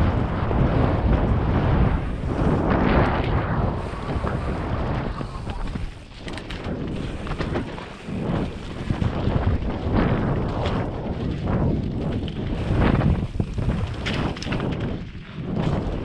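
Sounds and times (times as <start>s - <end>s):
bike knocks and rattles: 0.0s - 16.0s
bike tyres rolling over dirt: 0.0s - 16.0s
wind rushing over microphone: 0.0s - 16.0s.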